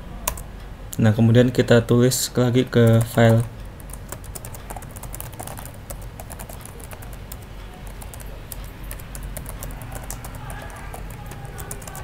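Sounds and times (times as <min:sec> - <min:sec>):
computer keyboard typing: 0:00.2 - 0:00.5, 0:02.6 - 0:12.0.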